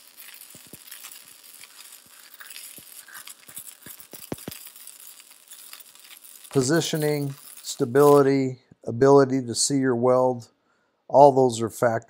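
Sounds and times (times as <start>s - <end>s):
arc welding crackling sizzle: 0.0s - 8.4s.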